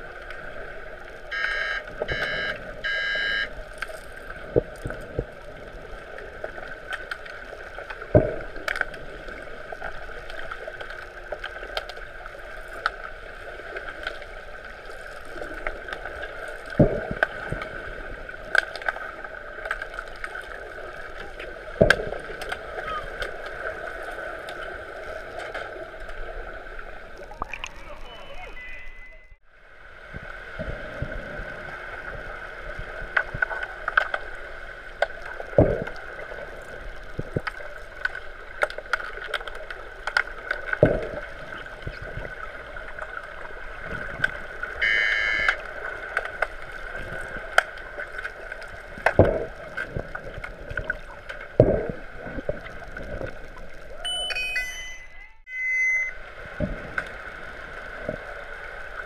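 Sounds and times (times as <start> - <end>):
steady underwater hum: 0.0 - 59.0
short high tone: 27.8 - 29.4, 54.0 - 56.2.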